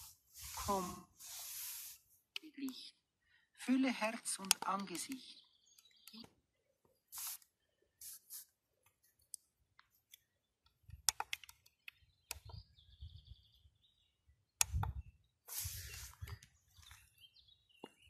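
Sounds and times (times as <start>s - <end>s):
radio static hiss: 0.0s - 2.0s, 7.2s - 7.4s.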